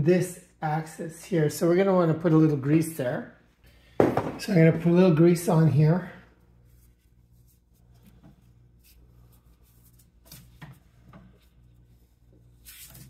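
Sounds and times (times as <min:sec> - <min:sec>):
steady low hum: 0:00.0 - 0:13.0
gloved hand rubbing grease: 0:06.6 - 0:13.0.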